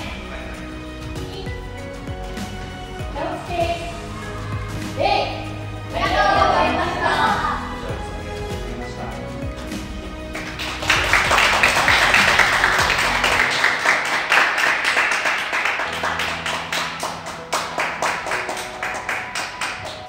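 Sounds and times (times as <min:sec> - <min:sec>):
background music: 0:00.0 - 0:20.0
small group applauding: 0:10.3 - 0:20.0.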